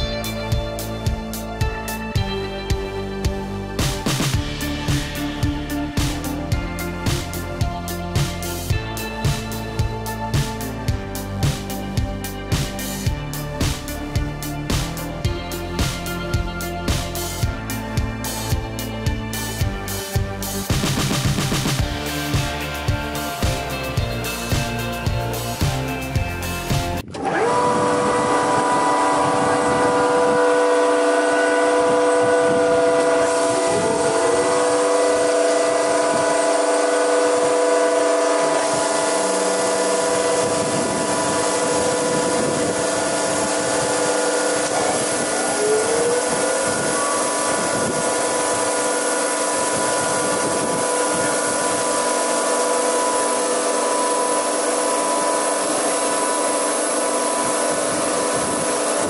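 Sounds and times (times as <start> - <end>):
motors whining: 3.3 - 59.0.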